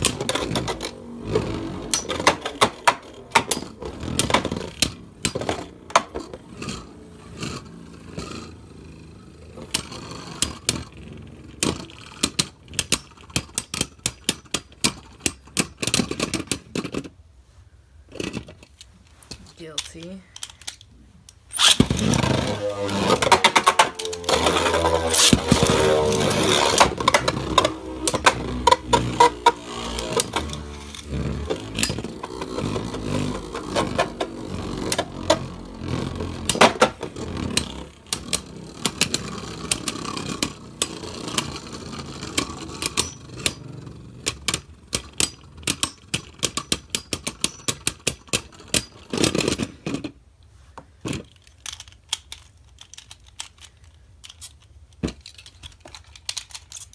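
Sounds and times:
spinning tops clacking together: 0:19.7 - 0:49.4
spinning tops whirring: 0:21.5 - 0:47.9.

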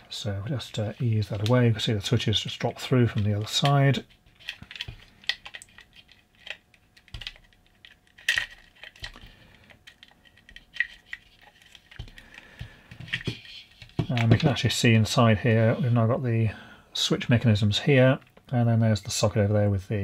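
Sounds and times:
plastic and metal parts clicking: 0:04.4 - 0:14.5.

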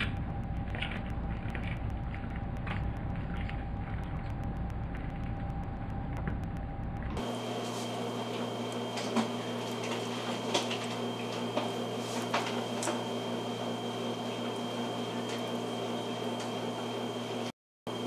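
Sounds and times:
high-pitched whine: 0:00.0 - 0:11.9
low hum: 0:00.0 - 0:17.2.

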